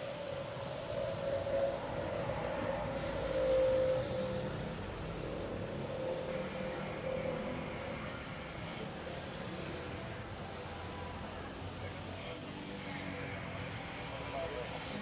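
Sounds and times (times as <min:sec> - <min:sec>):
jet engines at takeoff: 0:00.0 - 0:15.0.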